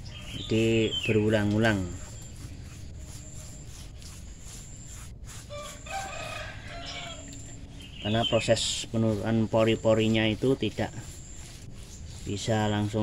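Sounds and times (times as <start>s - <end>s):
rooster crowing: 5.5s - 7.6s.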